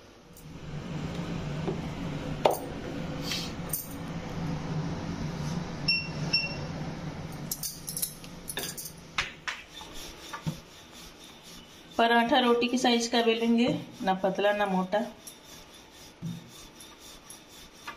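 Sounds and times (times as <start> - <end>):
low hum: 0.0 - 9.1
light clinks: 7.4 - 9.0.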